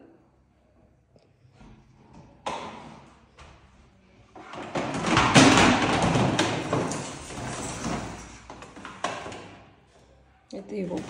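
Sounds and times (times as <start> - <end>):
vacuum cleaner dragged across tiles: 6.6 - 8.7.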